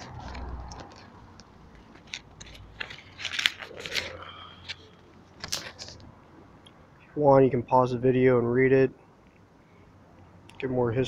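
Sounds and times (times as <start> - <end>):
paper leaflet pages rustling: 0.0 - 6.1.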